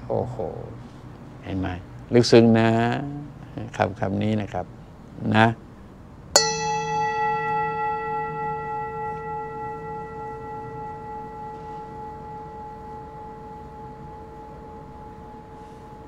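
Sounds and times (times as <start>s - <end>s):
singing bowl ringing: 6.4s - 16.0s.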